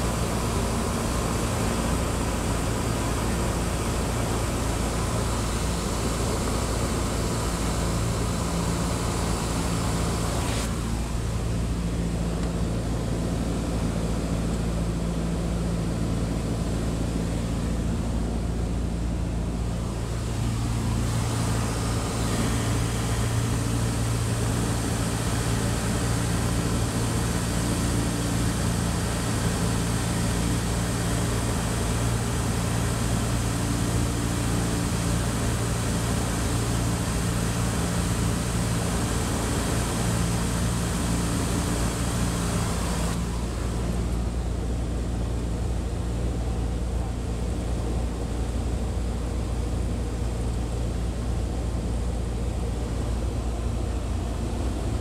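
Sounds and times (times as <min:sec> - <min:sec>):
airplane engine drone: 0:00.0 - 0:55.0
airflow rushing: 0:18.8 - 0:30.8.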